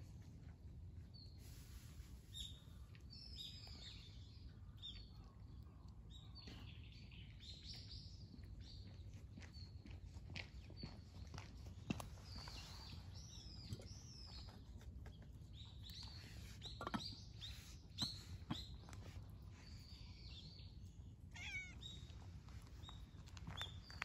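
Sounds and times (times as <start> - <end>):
small birds chirping: 0.4 - 24.0
cat crunching dry kibble: 20.7 - 24.0.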